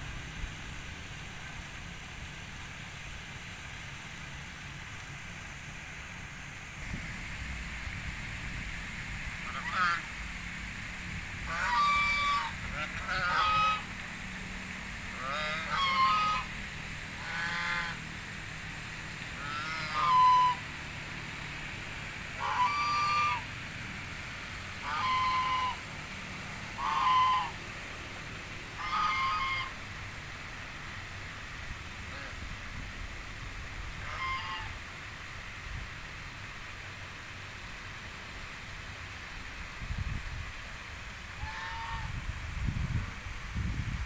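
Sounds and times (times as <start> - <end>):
geese honking: 9.4 - 10.1, 11.4 - 13.9, 15.2 - 16.5, 17.2 - 18.0, 19.4 - 20.6, 22.4 - 23.5, 24.8 - 25.8, 26.8 - 27.6, 28.8 - 29.8, 34.0 - 34.8, 41.4 - 42.1.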